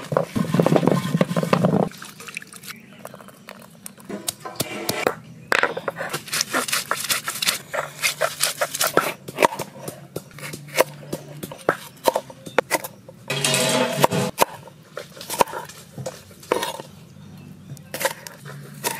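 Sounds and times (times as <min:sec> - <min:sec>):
stone roller grinding on stone: 0:00.0 - 0:01.9, 0:04.1 - 0:05.1, 0:13.3 - 0:14.6
knife cutting on wooden board: 0:05.9 - 0:11.0.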